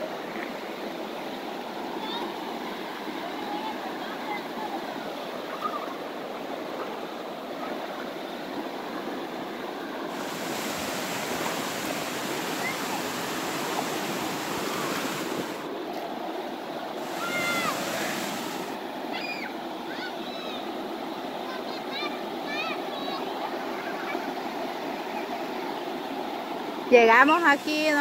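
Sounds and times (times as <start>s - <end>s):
waterfall rushing and splashing: 9.8s - 15.8s, 16.7s - 19.4s, 27.2s - 28.0s.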